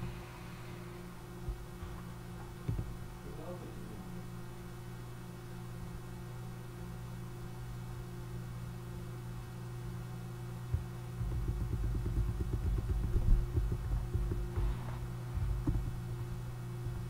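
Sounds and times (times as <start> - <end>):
electrical hum: 0.0 - 17.0
low irregular knocks and rumbling: 10.8 - 14.7, 15.3 - 16.0.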